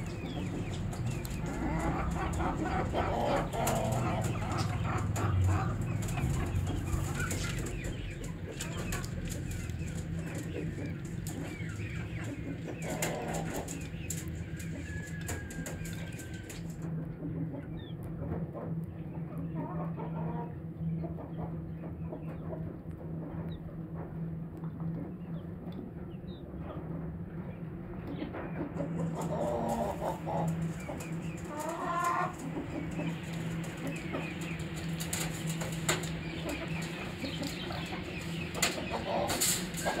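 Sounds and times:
chicks peeping: 0.0 - 40.0
steady low hum: 0.0 - 40.0
beaks pecking metal bowl: 29.0 - 40.0.

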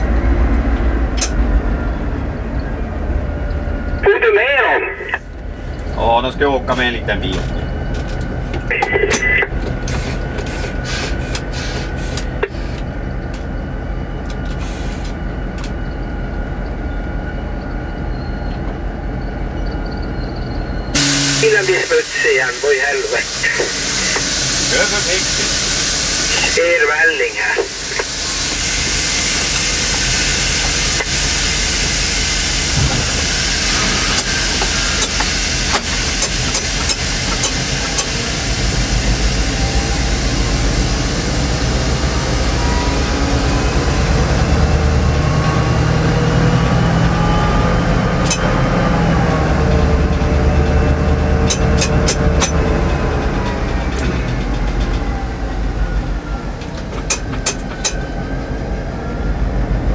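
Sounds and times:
locomotive diesel engine running hard: 0.0 - 59.9
air hiss: 9.9 - 12.8, 21.0 - 26.6, 27.4 - 41.8.

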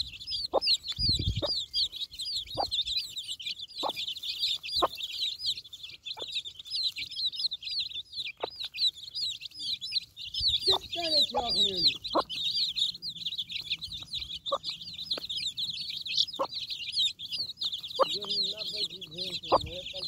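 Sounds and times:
chicks peeping: 0.0 - 20.0
hen clucking: 0.0 - 20.0.

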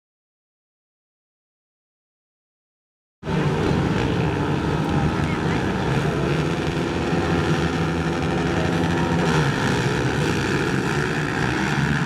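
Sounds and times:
quad engines revving: 3.3 - 12.0.

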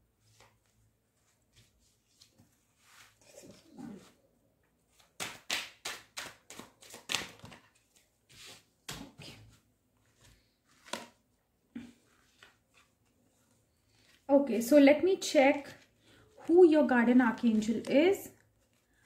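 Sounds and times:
cards tapping and slapping: 5.0 - 8.0, 10.8 - 11.2.

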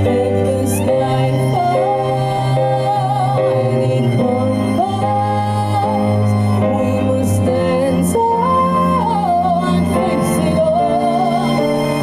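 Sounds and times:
string ensemble playing chords: 0.0 - 12.0.

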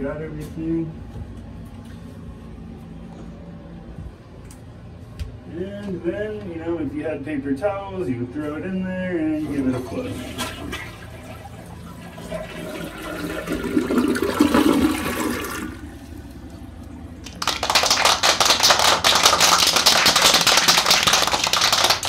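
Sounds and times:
toilet flushing: 9.4 - 17.6.

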